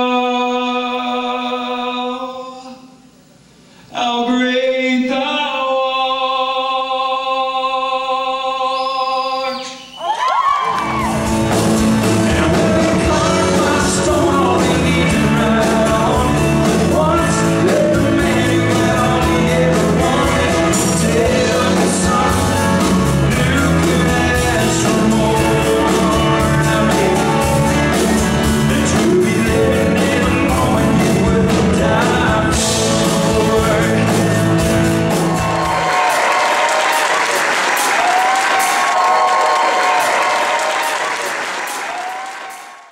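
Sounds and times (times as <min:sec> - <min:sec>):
audience applauding and cheering: 0:09.9 - 0:14.7, 0:34.6 - 0:42.9
song with band and singing: 0:10.6 - 0:42.8.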